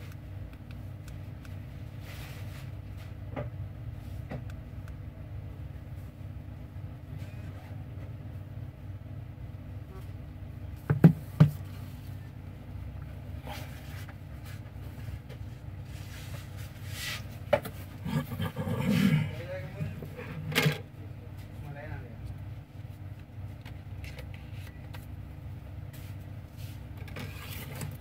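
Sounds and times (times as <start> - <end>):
low background hum: 0.0 - 28.0.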